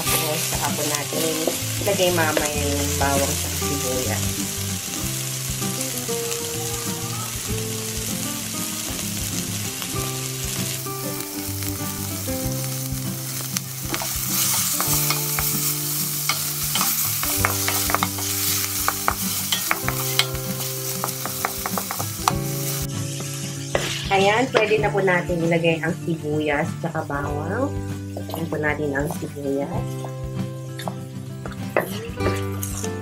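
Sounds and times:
meat sizzling in hot oil: 0:00.0 - 0:25.6, 0:27.5 - 0:33.0
soft background music: 0:00.0 - 0:33.0
wooden spatula scraping wok: 0:13.9 - 0:25.0.

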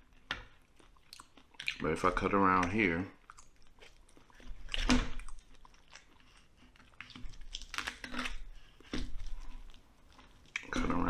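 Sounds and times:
knife crunching through skin and bone: 0:10.6 - 0:11.0.

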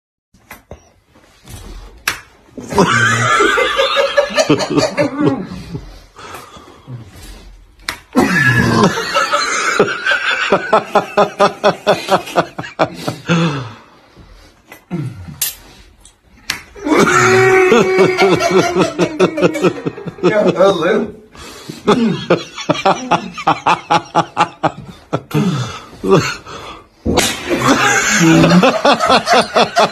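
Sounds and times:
loud high-pitched laughter: 0:02.6 - 0:05.5, 0:16.8 - 0:20.2, 0:27.4 - 0:29.9.

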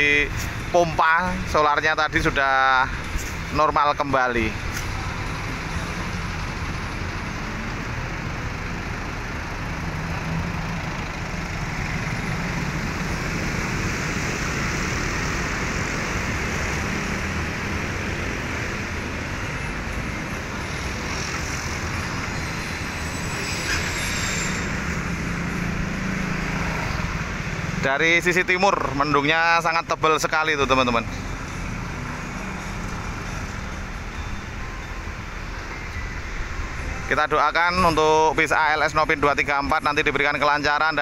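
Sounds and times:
bus diesel engine idling: 0:00.0 - 0:23.5.

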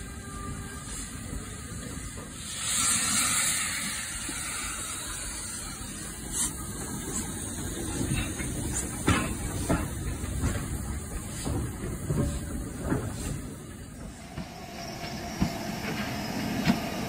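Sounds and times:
model train rolling on track: 0:00.0 - 0:17.0
steam hiss: 0:00.0 - 0:17.0
wheels clicking over rail joints: 0:07.6 - 0:14.4.

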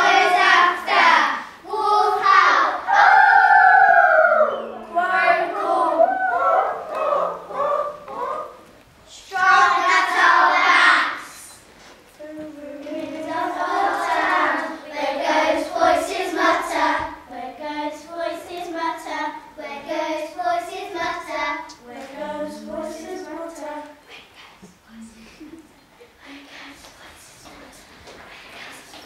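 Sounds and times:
children singing together: 0:00.0 - 0:11.6, 0:12.2 - 0:24.0.

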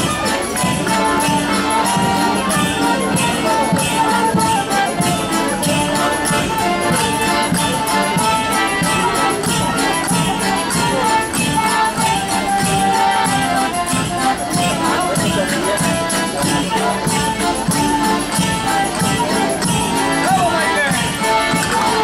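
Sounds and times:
held melodic notes: 0:00.0 - 0:22.0.

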